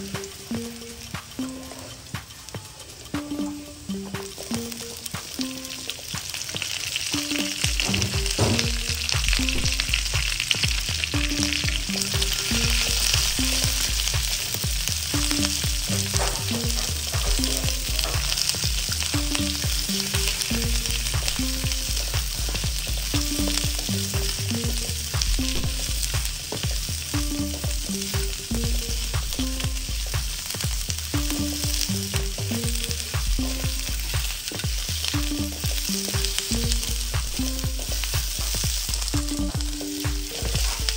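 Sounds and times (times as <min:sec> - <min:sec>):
background music with bass beat: 0:00.0 - 0:40.9
vegetables sizzling in a wok: 0:00.0 - 0:40.9
wooden spatula knocking on pan: 0:07.6 - 0:09.4, 0:15.2 - 0:18.5.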